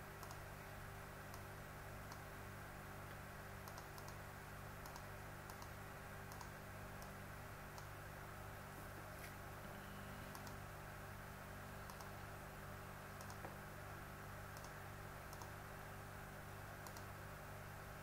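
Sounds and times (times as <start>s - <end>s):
steady low hum: 0.0s - 18.0s
computer mouse button clicking: 13.2s - 13.5s, 14.6s - 15.5s.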